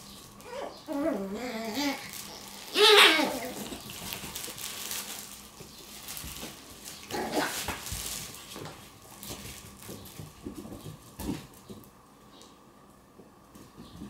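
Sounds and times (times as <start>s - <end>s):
puppy yelping: 0.4s - 3.8s.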